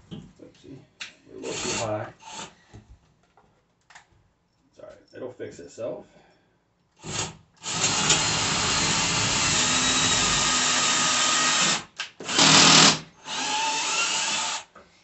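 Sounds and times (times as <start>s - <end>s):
cordless drill driving bolts: 7.0s - 14.7s.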